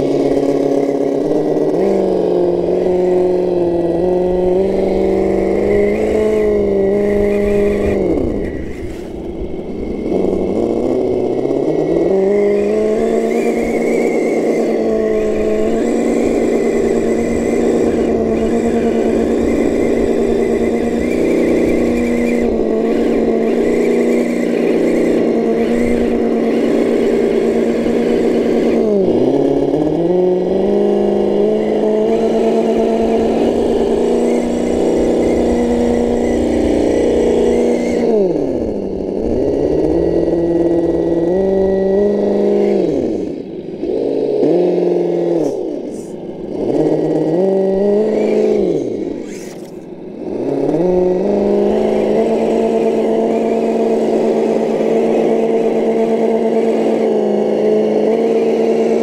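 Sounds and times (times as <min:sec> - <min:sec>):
simulated engine sound: 0:00.0 - 0:59.0.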